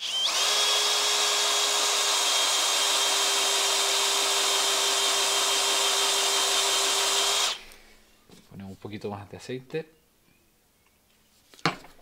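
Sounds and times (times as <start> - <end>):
cordless drill motor whine: 0.0 - 7.6
drill bit cutting steel: 0.0 - 7.6.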